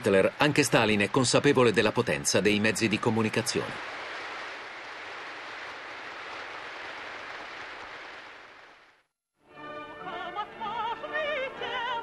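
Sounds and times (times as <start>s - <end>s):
crowd applause: 0.0s - 9.0s
operatic singing with accompaniment: 10.0s - 12.0s.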